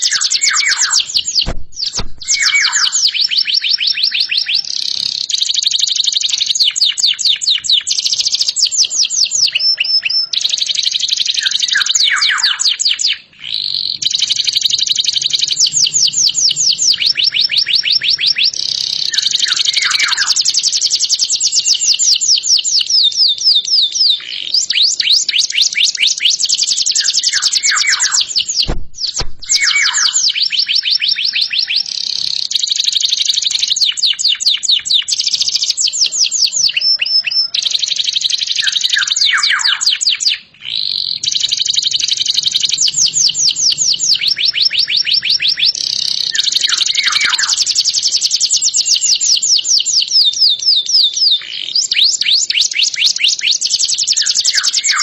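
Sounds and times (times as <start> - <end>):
canary singing trills: 0.0 - 55.0.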